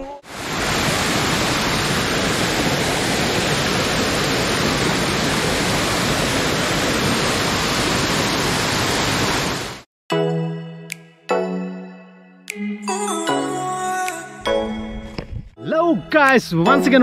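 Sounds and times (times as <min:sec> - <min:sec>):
waterfall crashing onto rocks: 0:00.3 - 0:09.8.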